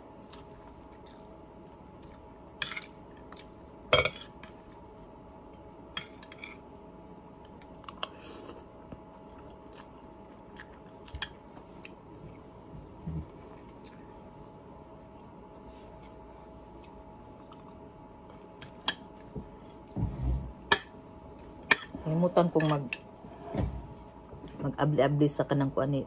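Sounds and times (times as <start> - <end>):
faint steady hum: 0.0 - 26.0
person chewing: 0.1 - 3.9, 7.4 - 12.1, 13.6 - 19.3.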